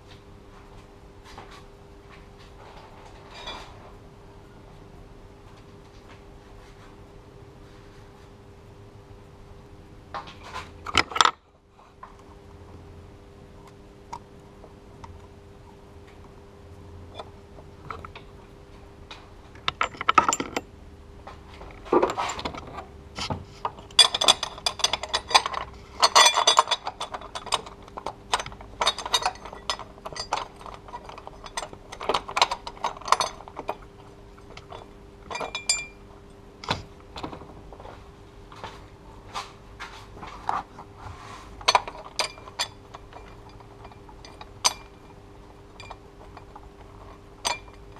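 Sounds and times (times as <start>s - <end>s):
metal tools clinking and rattling: 2.7s - 3.8s, 19.6s - 20.7s, 21.6s - 22.9s, 23.6s - 36.0s, 41.6s - 47.9s.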